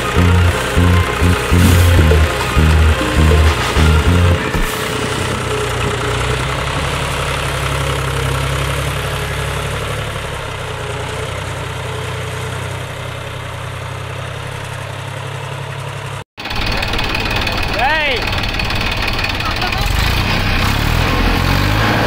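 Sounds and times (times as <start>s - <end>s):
tractor diesel engine idling: 10.4s - 20.4s.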